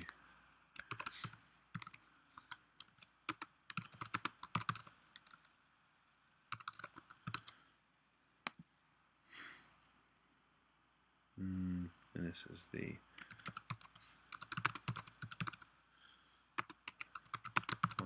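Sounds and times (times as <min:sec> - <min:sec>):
soft hiss: 0:00.0 - 0:03.7, 0:04.9 - 0:13.2
typing on computer keyboard: 0:00.8 - 0:05.5, 0:06.5 - 0:07.5, 0:13.2 - 0:15.6, 0:16.6 - 0:18.0.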